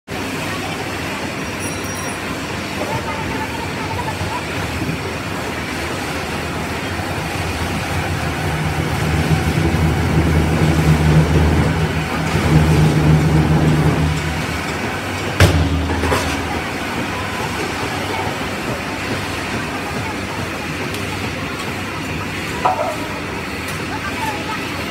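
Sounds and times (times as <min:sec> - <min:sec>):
low machine hum: 0:00.2 - 0:24.9
sharp metallic clank: 0:14.0 - 0:17.4.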